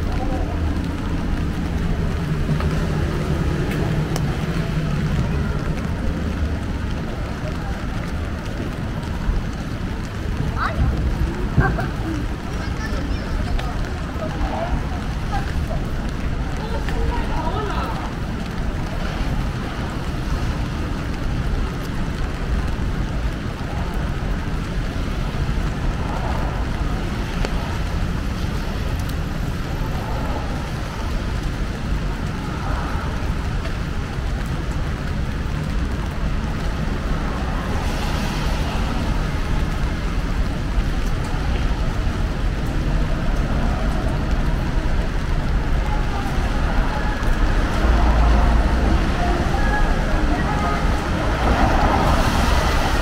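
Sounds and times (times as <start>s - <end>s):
rain: 0.0s - 53.0s
road traffic noise: 0.0s - 53.0s.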